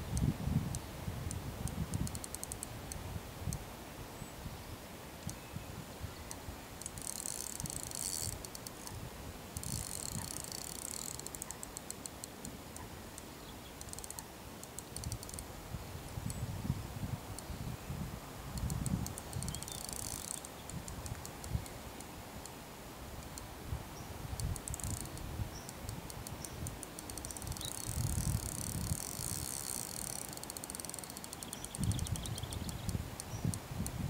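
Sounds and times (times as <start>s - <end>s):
wind buffeting microphone: 0.0s - 2.2s, 15.1s - 21.8s, 23.0s - 29.5s, 31.5s - 34.0s
fishing reel clicking: 0.1s - 2.7s, 6.3s - 15.5s, 18.6s - 21.7s, 24.4s - 34.0s.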